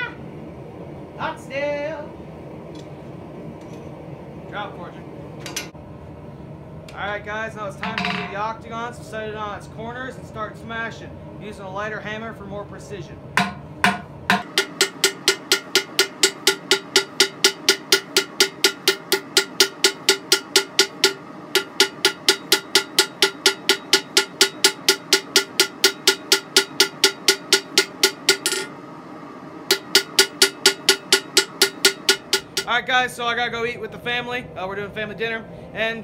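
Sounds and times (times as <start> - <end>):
anvil ringing: 13.4 - 28.7, 29.7 - 32.7
hammer striking hot steel on anvil: 13.4 - 28.8, 29.7 - 32.7.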